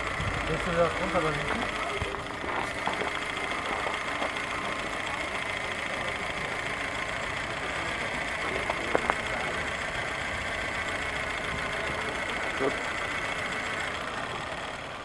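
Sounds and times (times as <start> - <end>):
car rolling on track: 0.0 - 15.0
small steam engine chuffing: 0.0 - 15.0
sharp clicks: 8.5 - 9.5.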